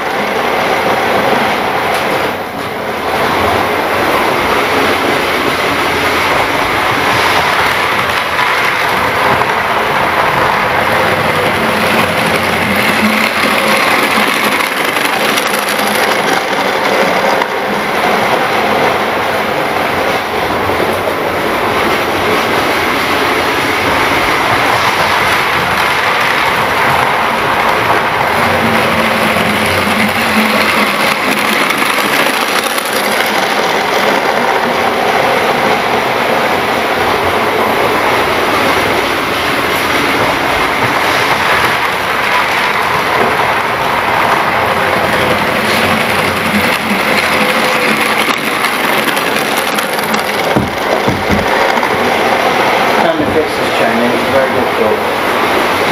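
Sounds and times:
model train wheels rattling: 11.0s - 17.6s, 27.8s - 33.9s, 45.3s - 52.0s.

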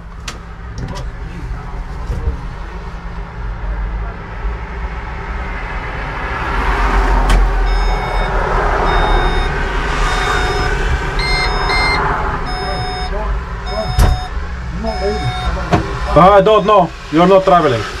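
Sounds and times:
electronic warning beep: 7.7s - 16.9s.

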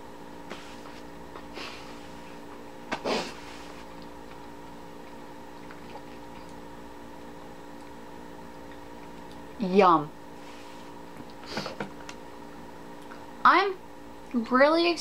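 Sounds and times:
steady electrical hum: 0.0s - 15.0s
sharp sniff: 3.0s - 3.8s
person chewing: 3.2s - 6.7s.

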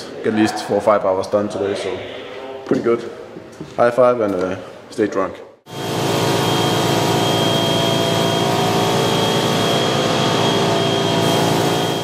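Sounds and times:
air compressor humming: 5.7s - 12.0s
high whistle: 6.3s - 12.0s
spray gun hissing: 6.9s - 12.0s.

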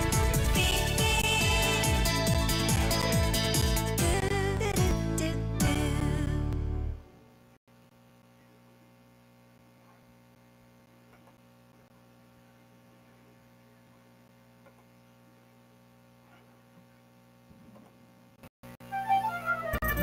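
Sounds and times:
music: 0.0s - 7.2s, 18.8s - 20.0s
faint electrical hum: 7.1s - 19.6s.

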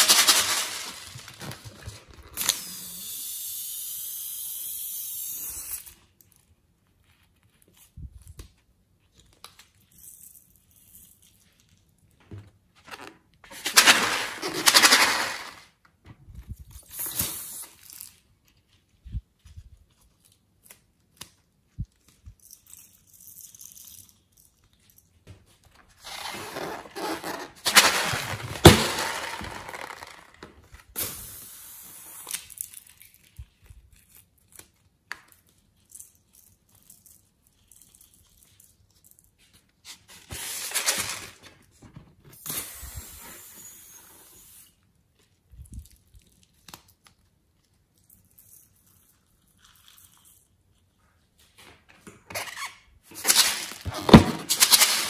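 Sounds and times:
rubber balloons squeaking: 26.0s - 30.4s, 52.3s - 55.0s.

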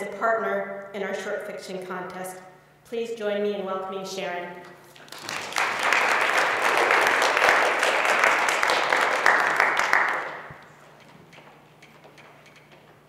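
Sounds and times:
audience applauding: 5.0s - 10.6s.

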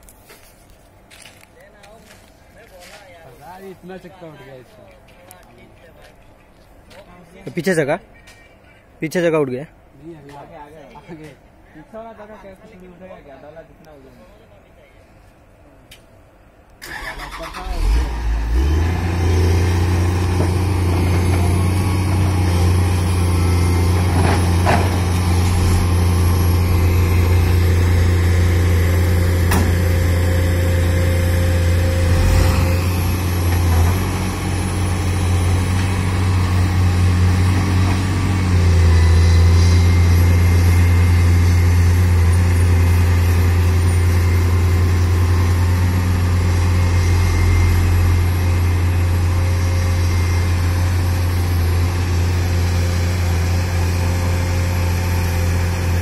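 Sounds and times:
excavator diesel engine running: 16.8s - 56.0s.

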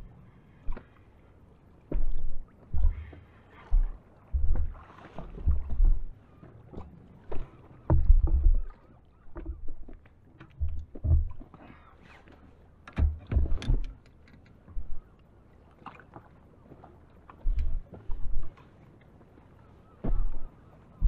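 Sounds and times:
water slapping boat hull: 0.0s - 21.0s
wind buffeting microphone: 3.7s - 6.1s.

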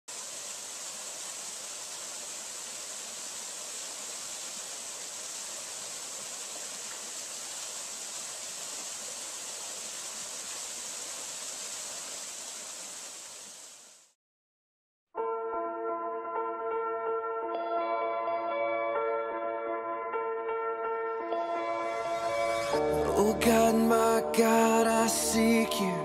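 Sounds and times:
waterfall rushing: 0.1s - 14.0s, 21.9s - 26.0s.

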